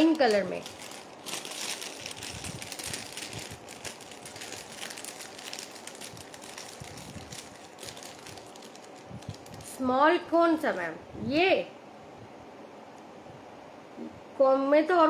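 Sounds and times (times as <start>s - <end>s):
jewellery packaging rustling: 0.0s - 9.7s.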